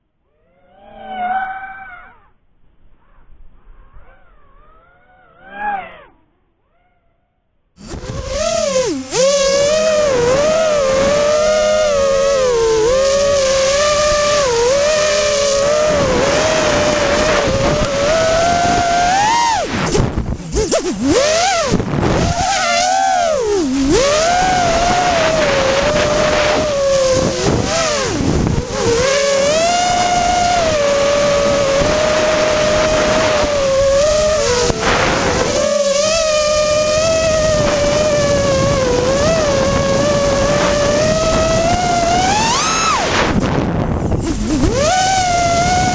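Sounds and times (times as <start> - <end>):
quadcopter motors whining: 3.0 - 6.3, 7.8 - 45.9.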